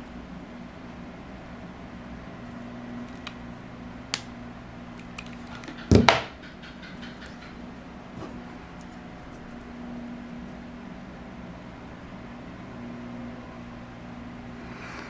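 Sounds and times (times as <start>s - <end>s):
steady low hum: 0.0s - 15.0s
glue gun knocking on wooden table: 5.8s - 6.3s.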